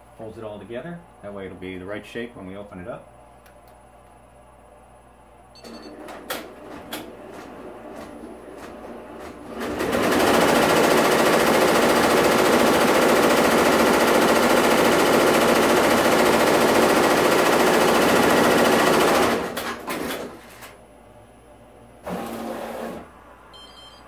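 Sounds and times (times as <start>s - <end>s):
embroidery machine stitching clatter: 6.0s - 20.4s.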